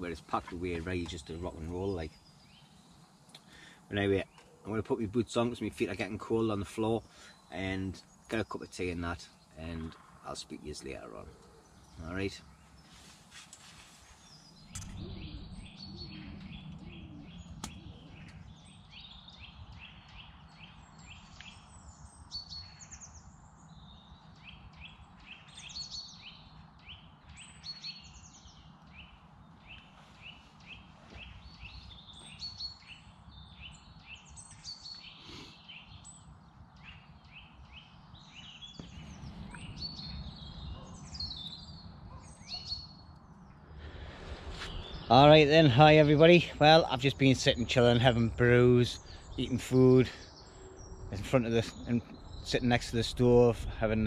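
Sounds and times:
small birds chirping: 0.0s - 54.0s
low background rumble: 14.5s - 19.4s, 43.5s - 54.0s.

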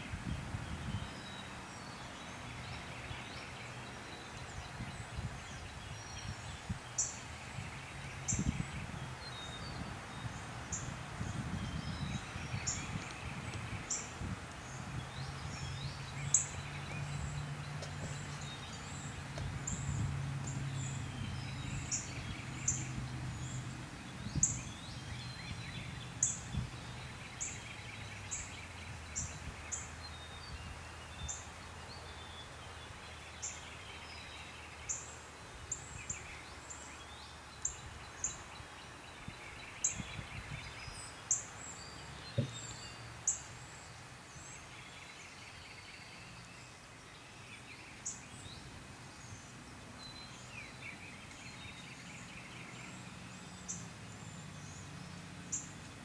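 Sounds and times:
small birds chirping: 0.0s - 56.0s.

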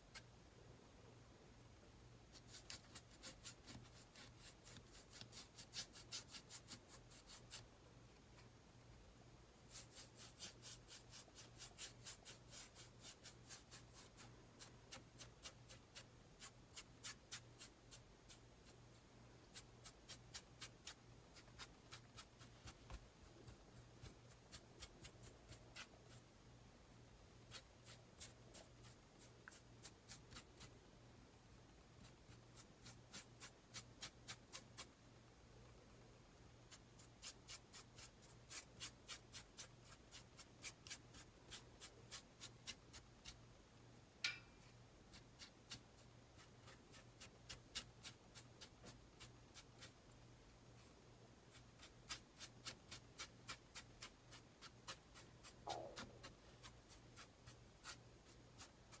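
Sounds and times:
paintbrush dabbing on canvas: 9.7s - 18.8s, 51.5s - 59.0s.

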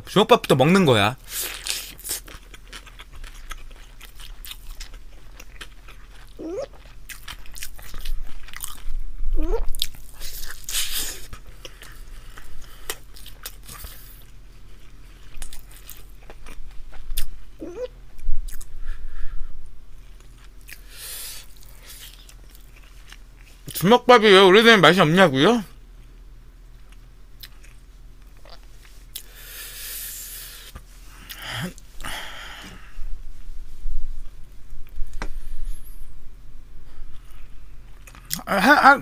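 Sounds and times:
close chewing mouth noise: 1.3s - 9.0s, 9.6s - 17.4s, 18.2s - 18.7s, 20.0s - 23.8s, 26.8s - 29.6s.

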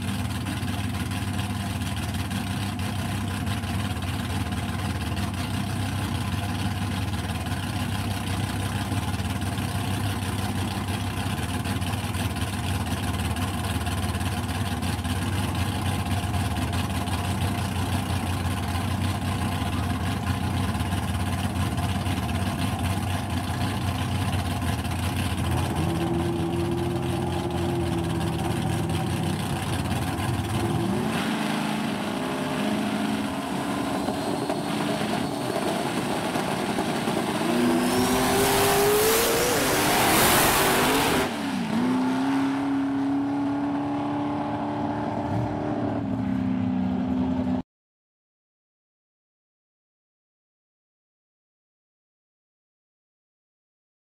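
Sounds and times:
drag racing engines revving: 4.6s - 47.6s.

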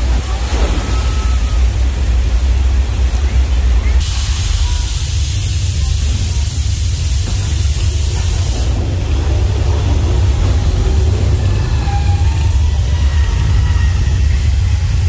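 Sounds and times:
deep rumble: 0.0s - 15.0s
loud hiss of spraying air: 4.0s - 8.8s.

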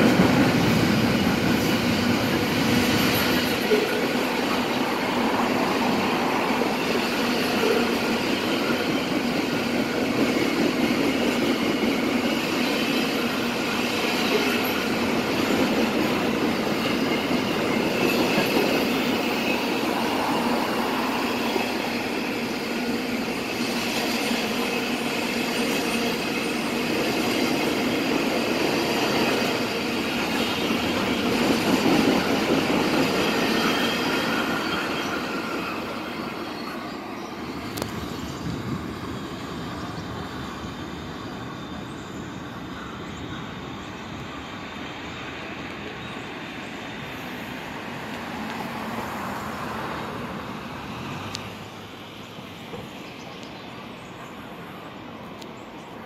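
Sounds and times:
high wheel squealing: 0.0s - 42.6s
train wheels rumbling on rails: 0.0s - 56.0s.

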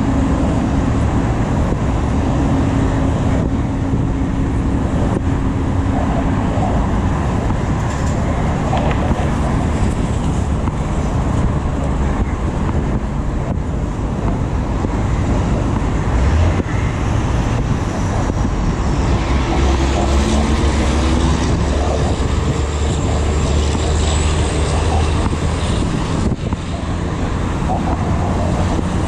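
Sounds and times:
road traffic noise: 0.0s - 29.0s.

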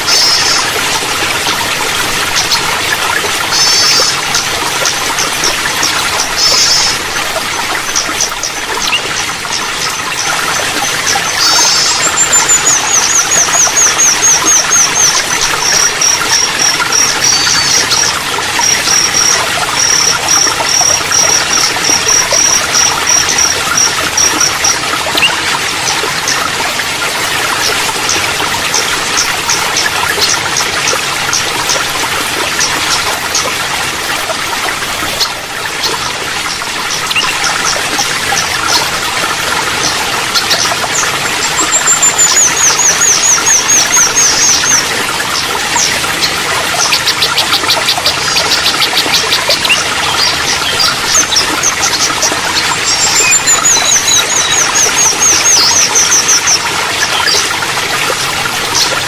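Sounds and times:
trickle of running water: 0.0s - 59.0s
songbird singing: 52.6s - 56.6s.

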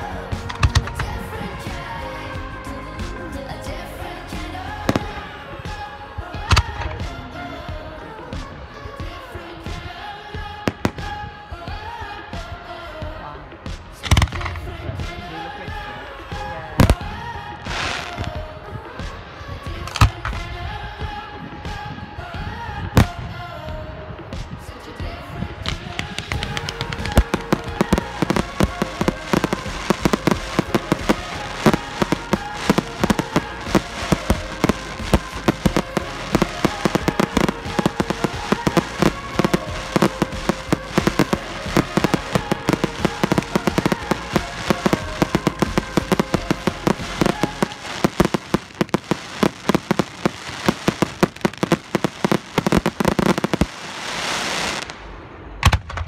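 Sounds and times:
fireworks crackling and popping: 0.0s - 3.4s, 4.4s - 56.0s
fireworks bangs: 4.4s - 8.6s, 9.6s - 12.6s, 13.7s - 22.0s, 25.6s - 56.0s
rushing hiss: 25.7s - 55.3s.

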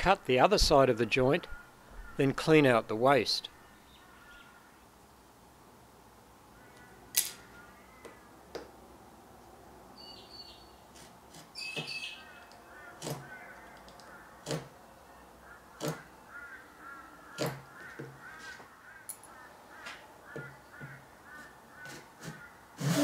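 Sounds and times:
faint birds calling: 0.1s - 5.3s, 6.2s - 23.0s
chisel clicking on wood: 13.0s - 14.7s, 15.8s - 16.0s, 17.4s - 18.1s.

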